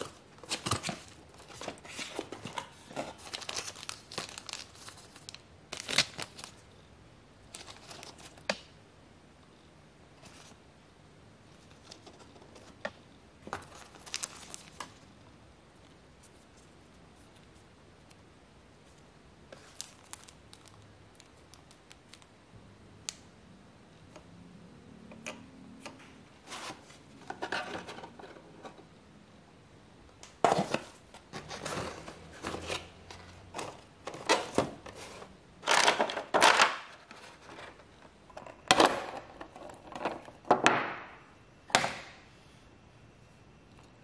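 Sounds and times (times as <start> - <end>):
cardboard and foam rustling: 0.0 - 6.6, 13.4 - 15.0, 26.4 - 28.8, 30.4 - 38.0
plastic bag crinkling: 0.4 - 6.6, 13.6 - 15.0, 19.6 - 22.2.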